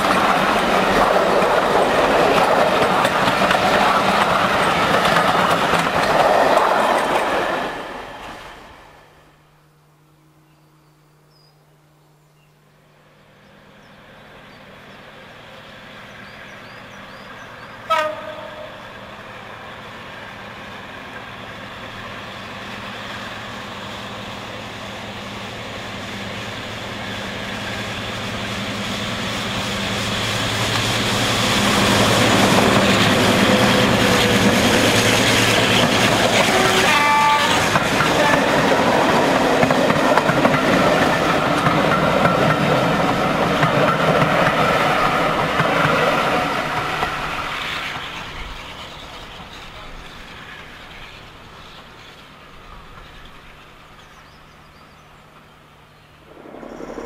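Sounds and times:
diesel locomotive engine: 0:00.0 - 0:10.6, 0:12.6 - 0:57.0
locomotive horn blast: 0:17.8 - 0:18.8, 0:36.4 - 0:38.6
coaches rumbling with wheel clatter: 0:28.9 - 0:55.2.

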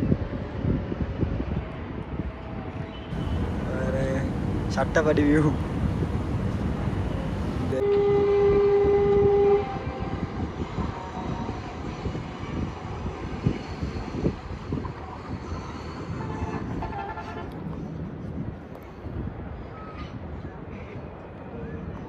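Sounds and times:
passing train rumble: 0:00.0 - 0:22.0
train horn blast: 0:07.7 - 0:11.6, 0:16.2 - 0:17.6.

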